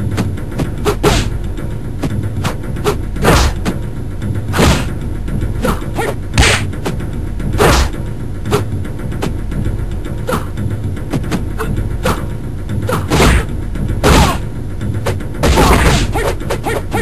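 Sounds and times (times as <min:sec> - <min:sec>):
background music: 0:00.0 - 0:17.0
punch and kick impacts: 0:00.6 - 0:01.4, 0:03.2 - 0:03.8, 0:04.5 - 0:05.0, 0:06.4 - 0:07.0, 0:07.6 - 0:08.6, 0:13.0 - 0:14.5, 0:15.1 - 0:16.6.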